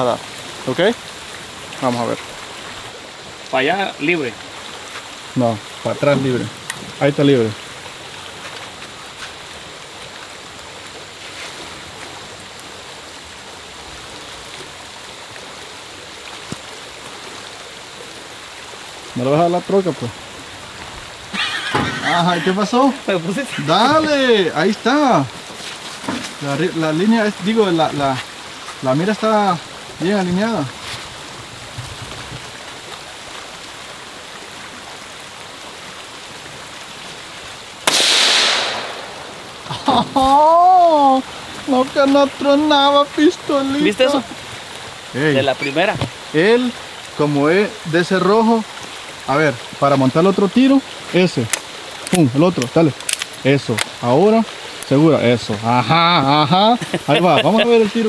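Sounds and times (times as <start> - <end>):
light rain on leaves: 0.0 - 58.0
outdoor hiss: 0.0 - 58.0
loud rifle shot: 37.8 - 39.4.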